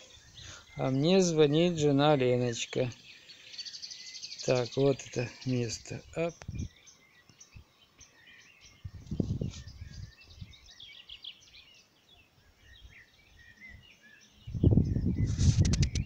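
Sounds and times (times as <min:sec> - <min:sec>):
songbirds chirping and trilling: 0:00.0 - 0:16.0
low rumbling microphone noise: 0:05.9 - 0:06.8, 0:08.8 - 0:10.7, 0:14.4 - 0:16.0.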